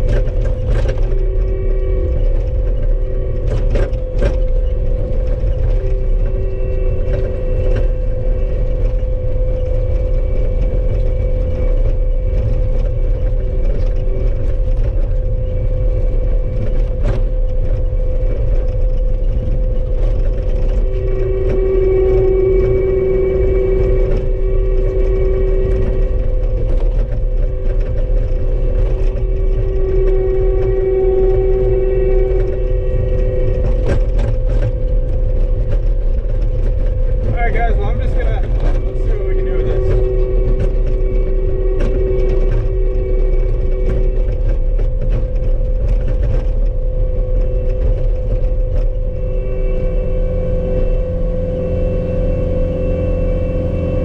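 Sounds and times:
engine low rumble: 0:00.0 - 0:54.0
high engine whine: 0:00.0 - 0:54.0.

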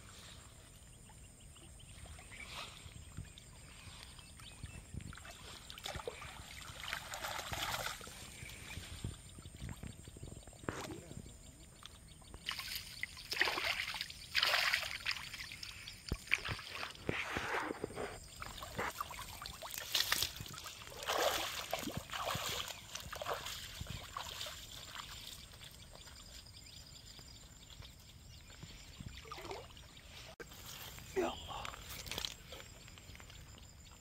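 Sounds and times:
river water splashing around net: 0:05.2 - 0:08.4, 0:12.4 - 0:17.0, 0:18.4 - 0:25.4.

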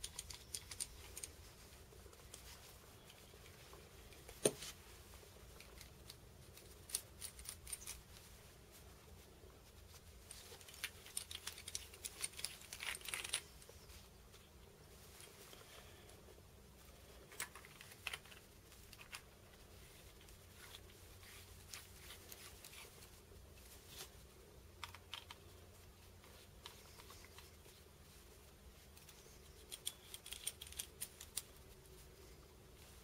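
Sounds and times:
small metal parts clicking: 0:00.0 - 0:01.4, 0:10.6 - 0:13.5, 0:29.0 - 0:31.5.

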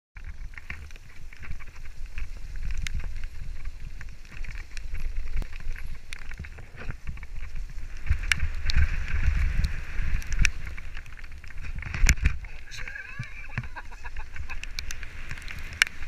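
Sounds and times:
bike clicks and rattles: 0:00.2 - 0:16.0
wind rumble on microphone: 0:00.2 - 0:16.0
tyres hissing on gravel: 0:12.4 - 0:16.0.

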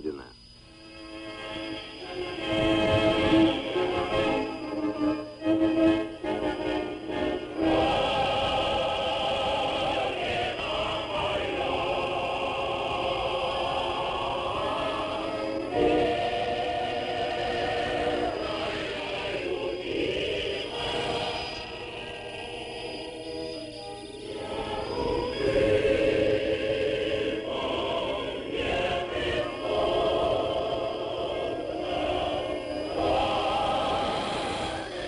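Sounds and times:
shortwave radio broadcast: 0:00.0 - 0:00.4, 0:01.9 - 0:05.4
choir singing held chords: 0:00.6 - 0:35.0.

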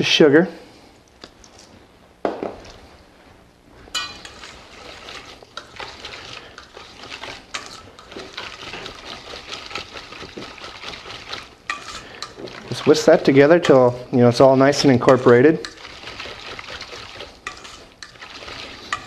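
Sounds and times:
whisk clinking against metal bowl: 0:04.0 - 0:14.0, 0:14.8 - 0:19.0.

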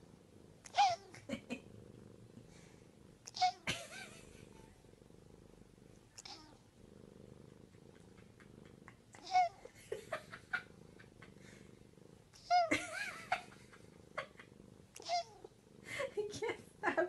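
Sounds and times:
cat purring: 0:00.0 - 0:17.0
cat meowing: 0:00.7 - 0:01.2, 0:03.3 - 0:03.7, 0:06.2 - 0:06.6, 0:09.2 - 0:09.7, 0:12.4 - 0:12.8, 0:15.0 - 0:15.5.

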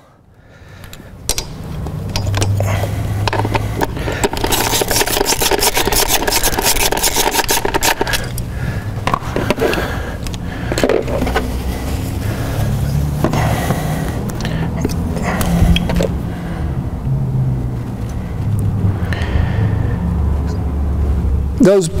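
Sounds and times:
hand ratchet clicking: 0:00.8 - 0:08.5
tool scraping and rubbing: 0:01.3 - 0:13.8.

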